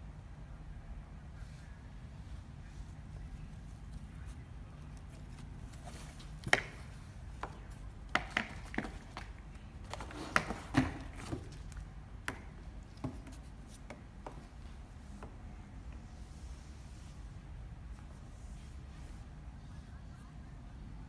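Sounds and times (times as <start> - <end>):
kitten pawing at cardboard: 3.8 - 15.4.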